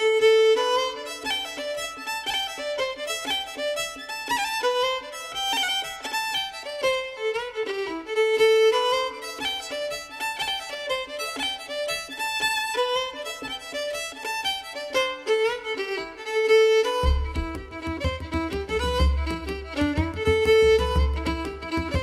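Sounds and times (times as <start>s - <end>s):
fast fiddle tune: 0.0s - 22.0s.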